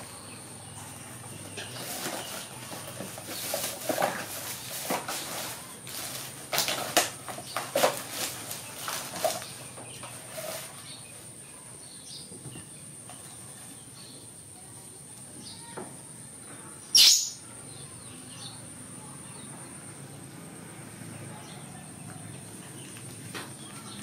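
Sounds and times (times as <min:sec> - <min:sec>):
rummaging in plastic basket: 0:01.2 - 0:11.2
diaper crinkling: 0:01.8 - 0:10.7.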